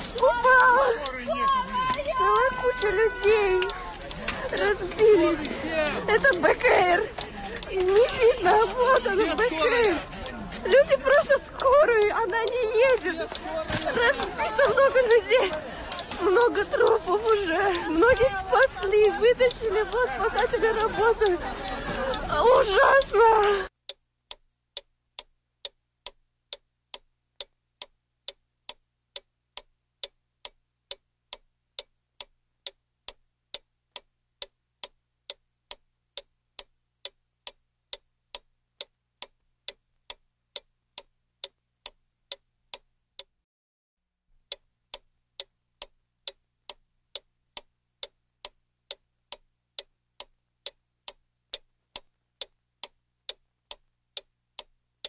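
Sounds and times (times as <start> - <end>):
clock ticking: 0.0 - 43.4, 44.4 - 55.0.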